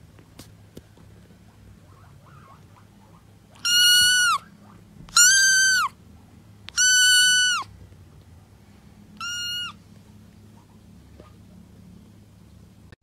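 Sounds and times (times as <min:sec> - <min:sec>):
kitten meowing: 0:03.6 - 0:04.5, 0:05.1 - 0:06.0, 0:06.7 - 0:07.7, 0:09.2 - 0:09.8.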